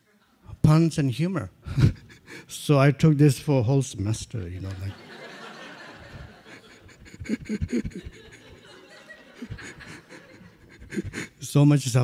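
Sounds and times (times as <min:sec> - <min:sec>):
room laughing softly: 0:04.7 - 0:11.4
breathy chuckles close up: 0:06.1 - 0:11.3.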